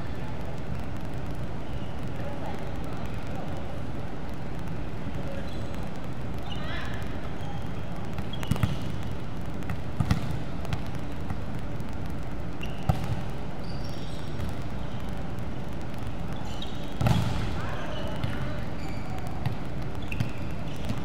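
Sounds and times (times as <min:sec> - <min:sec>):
gym background noise: 0:00.0 - 0:21.0
volleyball smacks: 0:17.0 - 0:17.5.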